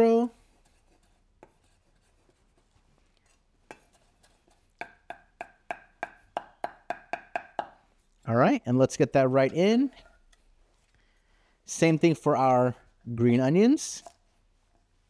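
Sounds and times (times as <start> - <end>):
cleaver chopping on wooden block: 4.8 - 7.8.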